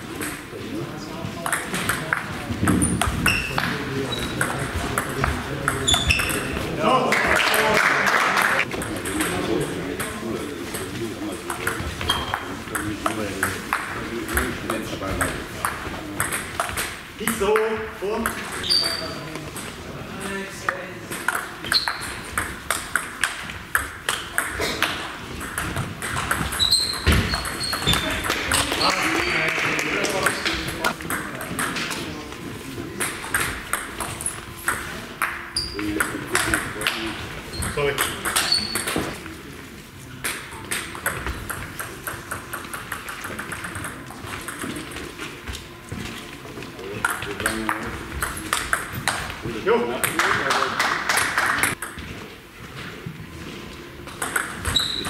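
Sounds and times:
shoe squeak on floor: 3.2s - 4.5s, 5.8s - 6.6s, 12.0s - 12.6s, 18.6s - 19.2s, 21.6s - 22.2s, 26.5s - 29.0s, 35.6s - 35.9s, 37.5s - 37.8s, 38.4s - 39.2s, 54.6s - 55.0s.

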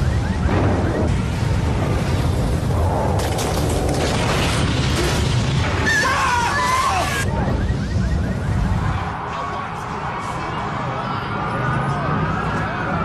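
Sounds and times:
building collapsing rumble: 0.1s - 9.2s.

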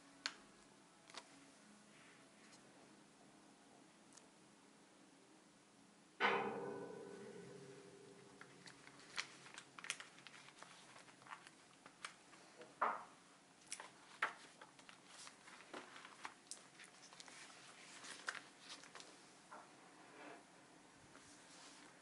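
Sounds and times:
notebook pages turning: 1.1s - 1.3s, 8.4s - 12.2s, 13.7s - 19.2s
paper rustling: 8.4s - 12.5s, 13.6s - 19.2s.

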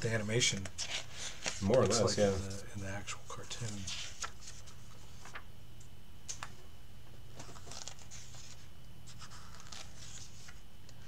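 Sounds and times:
low steady hum: 0.0s - 11.0s
pages turning: 0.5s - 2.6s, 3.5s - 5.5s, 7.3s - 11.0s.

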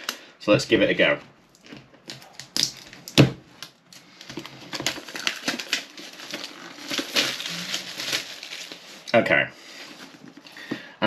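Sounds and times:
cardboard box rustling and clicking: 4.3s - 8.7s.

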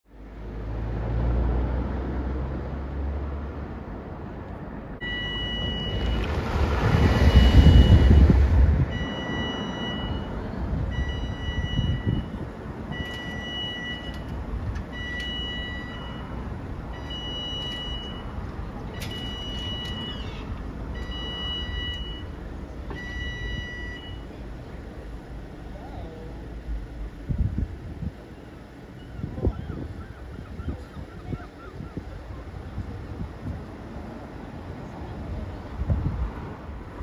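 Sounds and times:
road vehicle rumbling past: 0.1s - 13.1s
level crossing two-tone beep: 5.0s - 6.3s, 7.2s - 10.4s, 11.0s - 12.3s.

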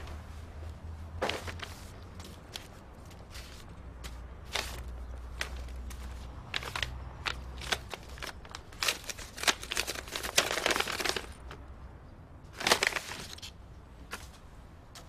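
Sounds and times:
paper envelope tearing and rustling: 4.4s - 11.4s, 12.6s - 13.5s.

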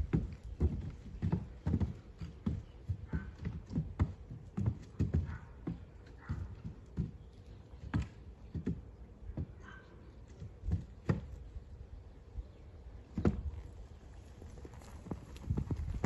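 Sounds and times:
hooves thumping on wooden box: 0.0s - 11.5s, 13.1s - 13.7s.

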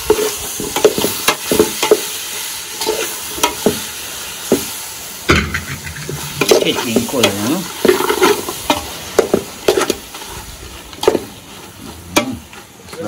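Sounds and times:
meat sizzling: 0.0s - 13.0s
metal spoon scraping metal pot: 5.4s - 7.4s.

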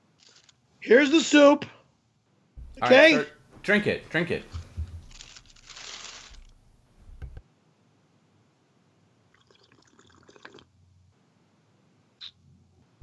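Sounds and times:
person sipping soup: 9.3s - 10.7s.

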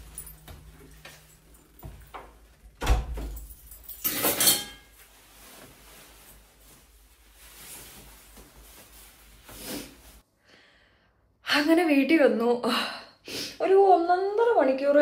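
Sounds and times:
jacket rustling: 0.0s - 10.2s.

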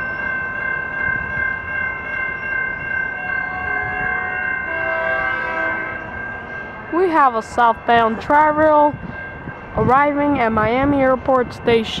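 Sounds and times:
train horn: 3.4s - 6.1s.

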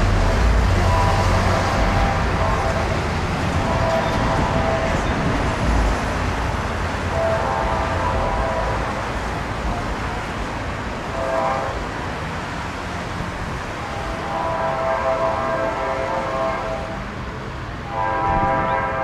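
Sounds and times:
locomotive air horn blasts: 0.0s - 5.3s, 7.1s - 9.0s, 11.1s - 11.9s, 13.9s - 17.2s, 17.8s - 19.0s
road traffic noise: 0.0s - 19.0s.

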